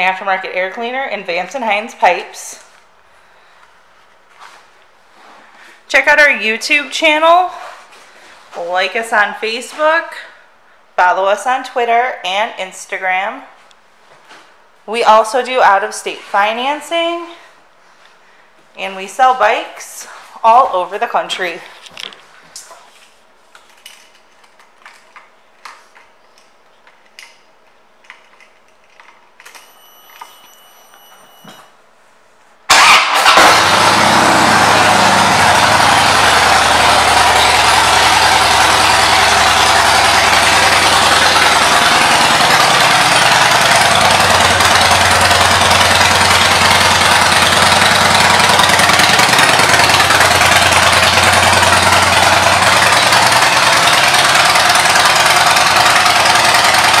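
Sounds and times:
brief high tone: 0:29.5 - 0:31.8
motorcycle engine starting and idling: 0:32.7 - 0:57.0.

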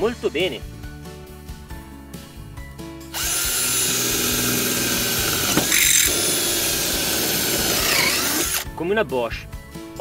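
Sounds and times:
drill boring into metal: 0:03.1 - 0:08.7.

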